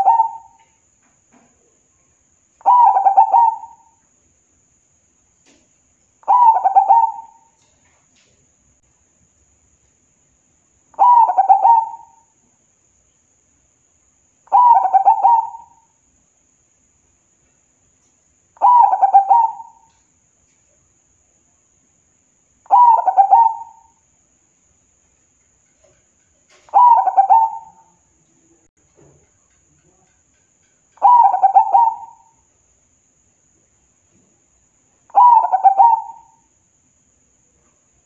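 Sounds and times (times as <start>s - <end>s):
dove cooing: 0.0s - 0.6s, 2.6s - 4.0s, 6.2s - 7.7s, 11.0s - 12.2s, 14.5s - 15.9s, 18.6s - 20.0s, 22.7s - 23.9s, 26.5s - 28.0s, 31.0s - 32.4s, 35.1s - 36.4s.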